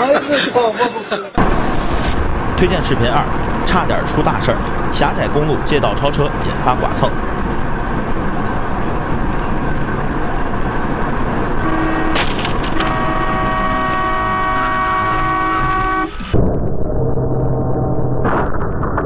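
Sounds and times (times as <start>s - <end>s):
road noise inside car: 1.4s - 16.4s
car horn: 11.6s - 16.4s.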